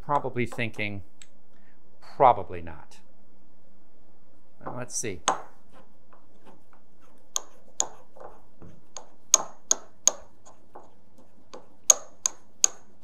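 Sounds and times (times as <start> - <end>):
mortar and pestle grinding paste: 5.3 - 13.0
pestle clinking against bowl: 7.3 - 8.3, 9.0 - 10.9, 11.5 - 13.0.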